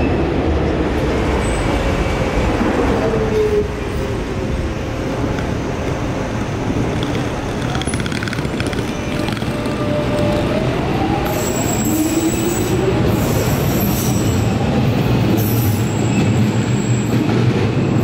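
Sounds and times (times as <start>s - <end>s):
train wheel rumble: 0.0s - 18.0s
trains rumbling overhead: 0.0s - 18.0s
rapid clicks: 6.8s - 10.4s.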